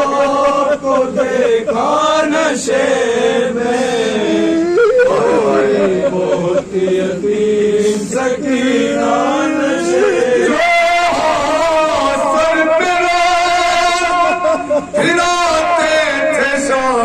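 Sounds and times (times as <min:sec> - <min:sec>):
man singing a lament: 0:00.0 - 0:17.0.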